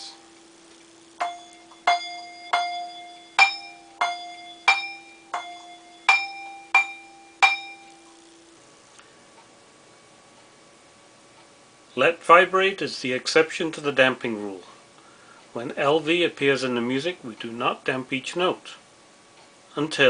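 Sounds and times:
damped handbell notes: 1.2 - 8.1.

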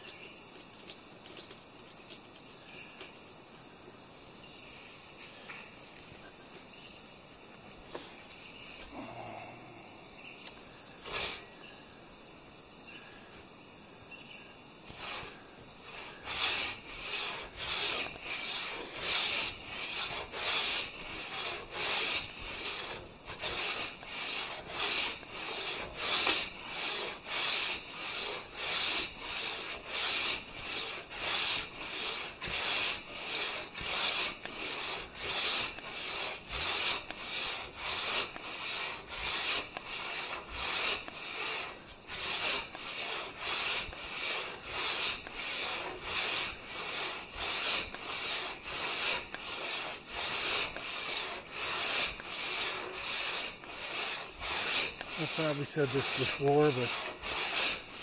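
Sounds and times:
hand saw rasping through log: 8.9 - 9.4, 11.0 - 11.5, 14.9 - 58.0.

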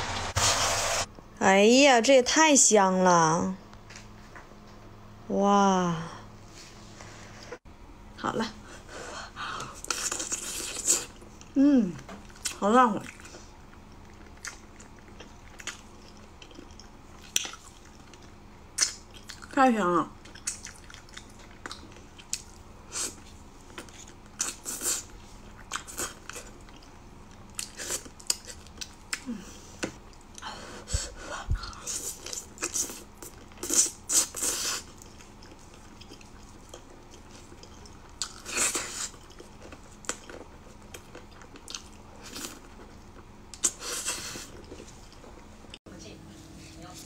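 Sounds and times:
person chewing: 9.7 - 11.6, 12.2 - 19.5, 20.2 - 29.3, 31.6 - 45.8.

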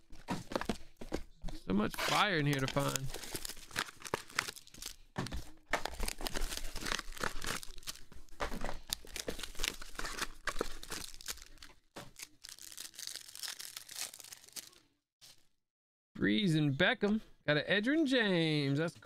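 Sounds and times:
plastic wrapping tearing and crinkling: 2.1 - 14.8.

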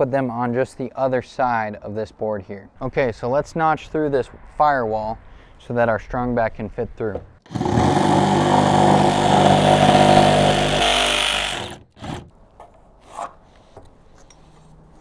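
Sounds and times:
reciprocating saw cutting wood: 7.5 - 12.3.

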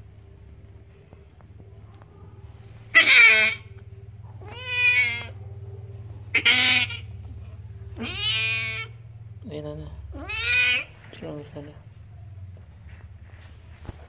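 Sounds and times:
cat meowing: 2.9 - 3.7, 4.4 - 5.4, 6.3 - 7.0, 8.0 - 9.0, 10.1 - 11.0.

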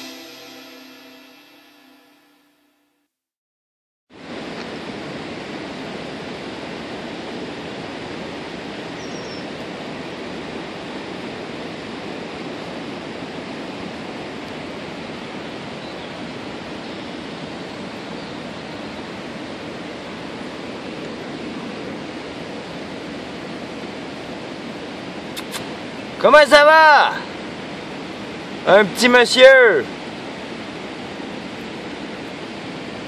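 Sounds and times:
brief high chirp: 0.0 - 2.6.

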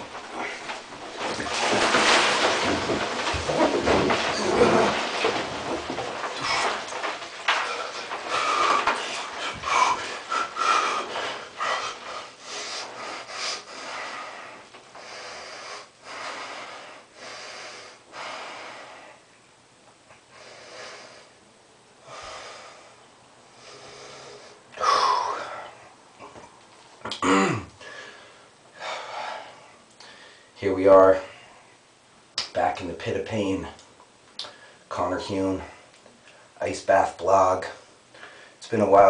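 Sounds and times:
man breathing hard: 7.5 - 19.3, 22.0 - 25.9, 27.8 - 30.6.

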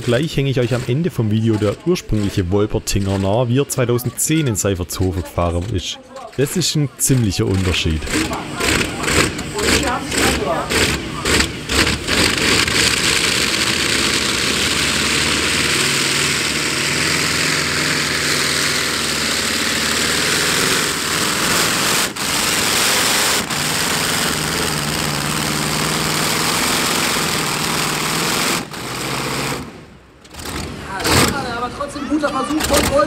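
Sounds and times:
radial aircraft engine at high power: 8.0 - 29.7.

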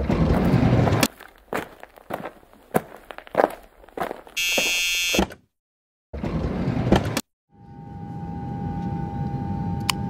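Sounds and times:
single tone: 4.4 - 5.3, 7.5 - 10.0.

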